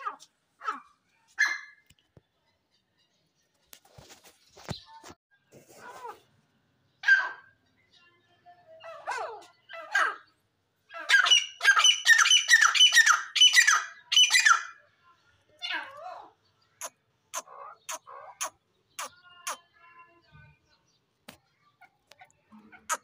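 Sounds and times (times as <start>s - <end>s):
bird calling harsh repeated notes: 16.8s - 19.7s, 22.8s - 23.0s.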